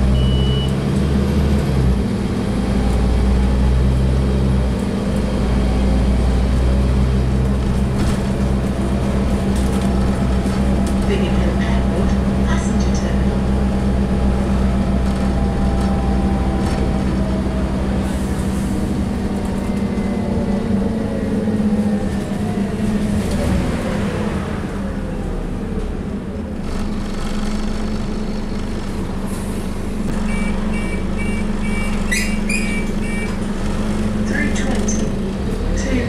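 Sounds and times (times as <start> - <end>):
bus diesel engine humming: 0.0 - 36.0
short high beeps: 30.2 - 33.4.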